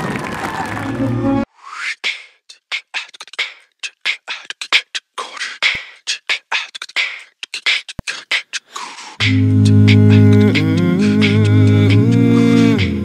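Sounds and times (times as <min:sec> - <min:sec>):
beatboxing: 0:01.6 - 0:13.0.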